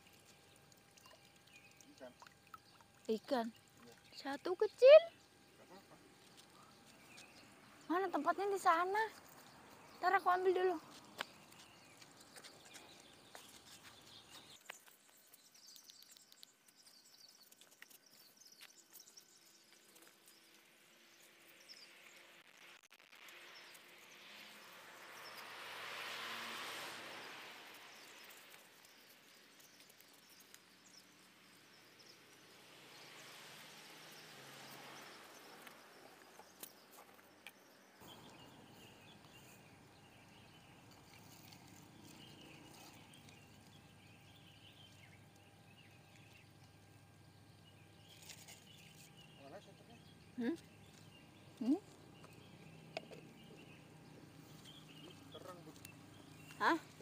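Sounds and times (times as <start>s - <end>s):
small high chirps: 8.9s - 24.7s.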